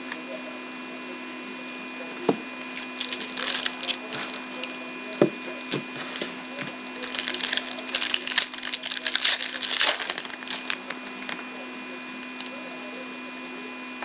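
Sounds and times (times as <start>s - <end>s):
steady hum: 0.0s - 14.0s
foil wrapper crinkling and tearing: 2.6s - 4.7s, 5.4s - 12.7s.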